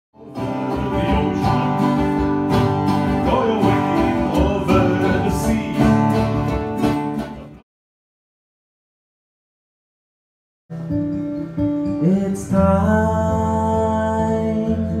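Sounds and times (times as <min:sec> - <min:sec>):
acoustic guitar: 0:00.2 - 0:07.6, 0:10.7 - 0:15.0
banjo: 0:00.2 - 0:07.6.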